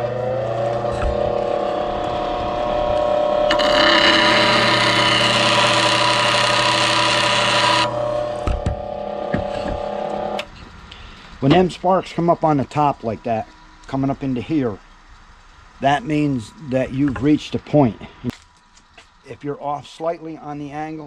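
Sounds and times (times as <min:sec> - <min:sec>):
bench grinder motor humming: 0:00.0 - 0:10.6
steel grinding on stone: 0:00.5 - 0:10.4.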